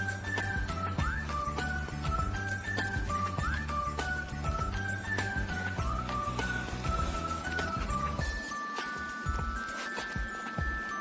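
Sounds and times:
high whistle-like melody: 0.0 - 11.0.

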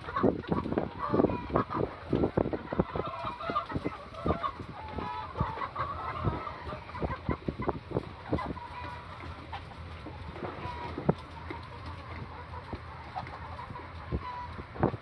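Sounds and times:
flock of chickens clucking: 0.0 - 15.0.

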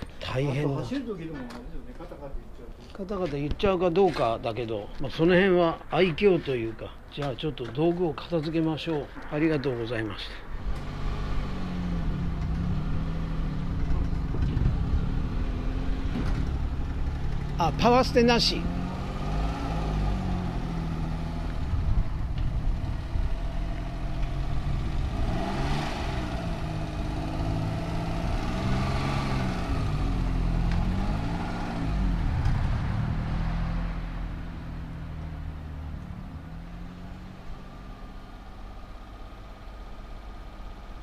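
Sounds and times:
small car engine revving: 10.6 - 38.8.

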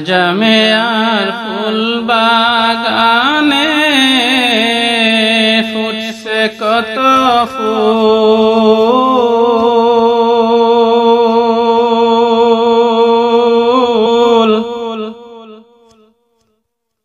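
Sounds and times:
man singing: 0.0 - 15.7.

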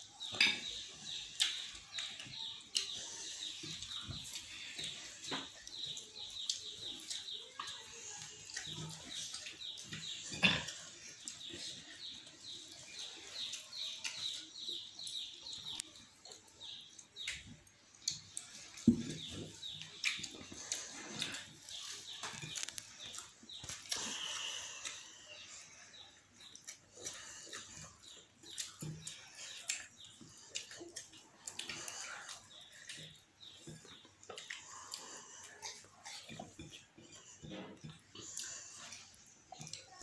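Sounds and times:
chewing and lip-smacking: 11.2 - 25.1, 26.4 - 40.0.

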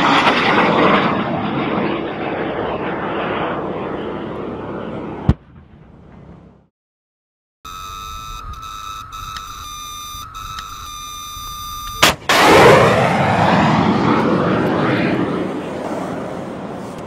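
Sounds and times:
high electronic tone: 7.7 - 12.0
sharp crack of motor firing: 12.0 - 13.0
loud rushing rocket motor: 12.0 - 17.0.

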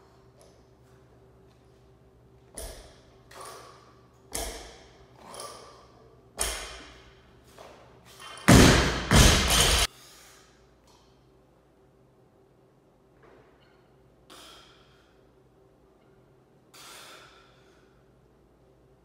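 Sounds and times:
loud barbell crashes: 8.2 - 9.9
barbell thudding on rubber floor: 8.5 - 9.9.

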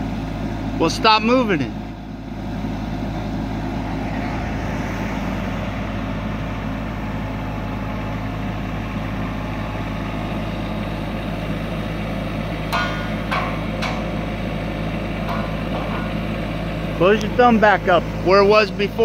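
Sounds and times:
diesel engine running: 0.0 - 19.0.

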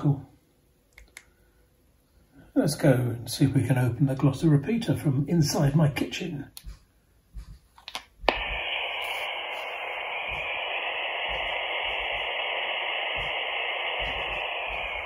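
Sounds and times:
radio static hissing: 8.2 - 15.0.

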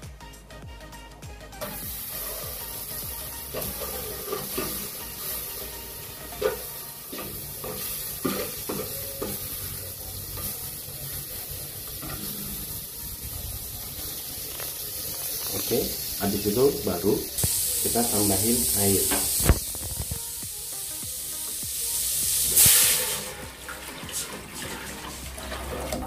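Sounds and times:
margarine sizzling in a pot: 1.6 - 26.0.

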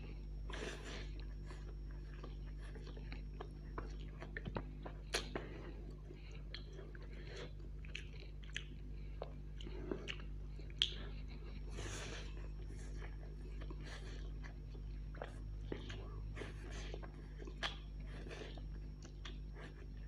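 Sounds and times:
wet chewing: 0.0 - 20.0.

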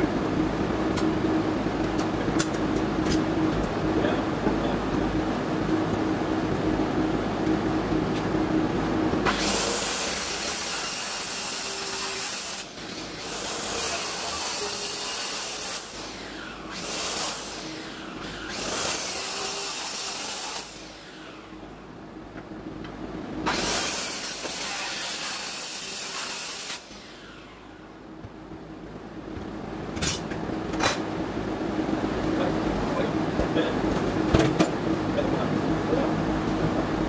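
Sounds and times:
saw motor winding down: 9.2 - 21.6, 23.4 - 27.9
circular saw cutting board: 9.3 - 21.6, 23.5 - 27.8.

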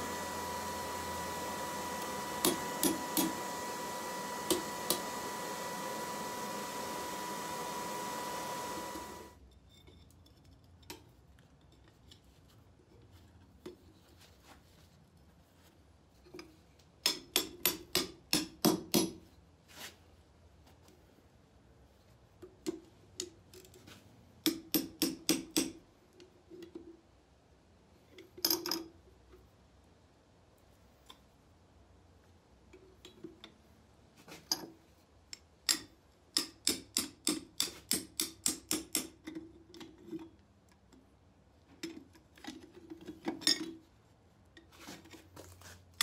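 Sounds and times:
steady hum: 0.0 - 9.4.

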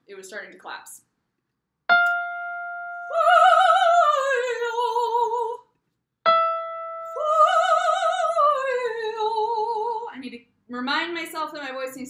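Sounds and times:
woman singing operatic vocalise: 3.0 - 5.7, 7.0 - 10.2.

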